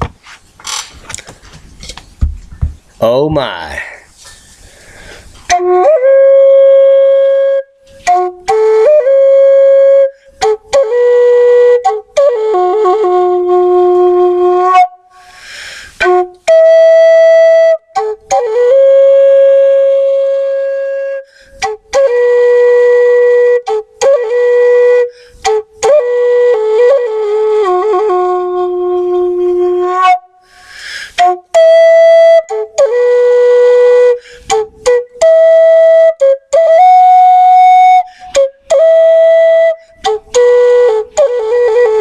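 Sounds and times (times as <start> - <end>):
breathy hiss: 3.8 - 5.5, 15.1 - 16.0, 30.4 - 31.2
flute-like instrument melody: 5.5 - 42.0.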